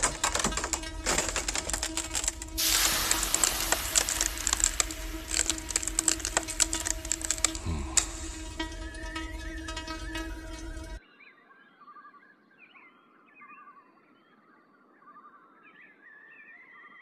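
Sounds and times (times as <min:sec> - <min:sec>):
hissing rush: 0:00.0 - 0:11.0
ice crackling: 0:00.0 - 0:11.0
low music drone: 0:00.0 - 0:11.0.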